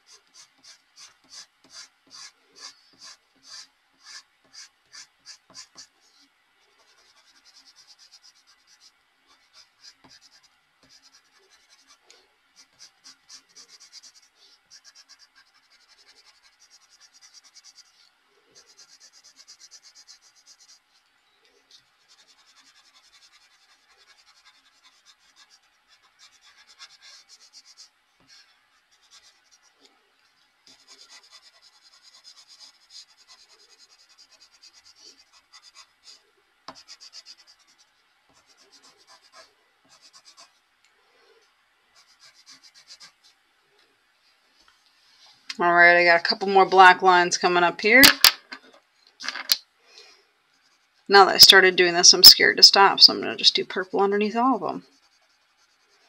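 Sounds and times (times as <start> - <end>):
colored pencil scratching on paper: 0.0 - 6.2, 6.8 - 21.0, 21.7 - 29.8, 30.7 - 40.6, 42.0 - 43.4, 50.5 - 51.5, 54.1 - 56.0.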